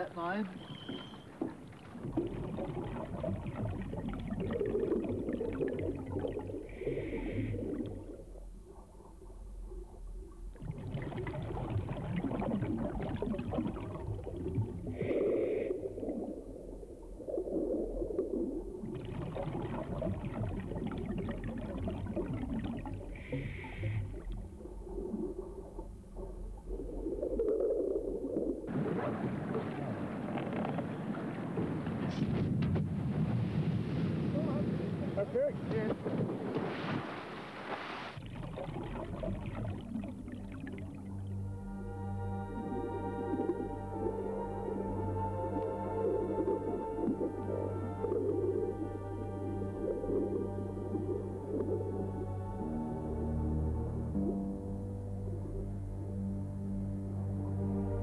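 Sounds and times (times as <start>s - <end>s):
wind: 0.0s - 2.6s, 28.6s - 38.3s
sea noise: 0.0s - 58.0s
bubbling exhale: 2.0s - 8.4s, 10.5s - 25.9s
diver breathing through regulator: 6.6s - 7.8s, 14.9s - 16.0s, 23.1s - 24.2s.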